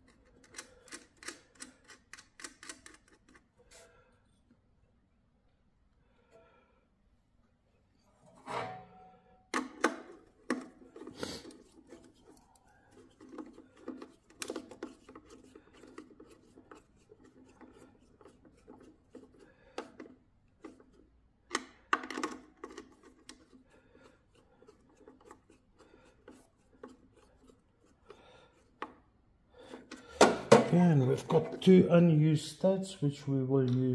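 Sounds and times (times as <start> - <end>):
metallic clicks knocks and scrapes: 0.0 - 3.8, 9.6 - 29.0
screwdriver on metal studs: 0.0 - 3.8, 9.6 - 29.0.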